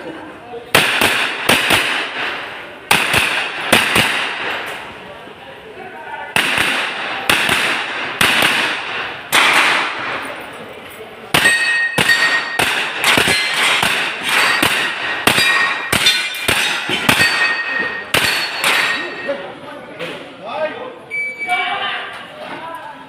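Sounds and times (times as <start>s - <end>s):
rifle shots: 0.7s - 4.9s, 6.4s - 10.3s, 11.3s - 19.0s
steel targets ringing: 11.4s - 19.5s.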